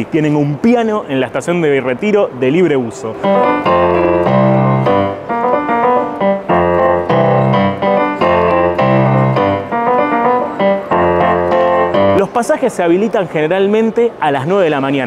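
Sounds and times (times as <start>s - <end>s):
piano melody over bass chords: 3.1s - 12.5s.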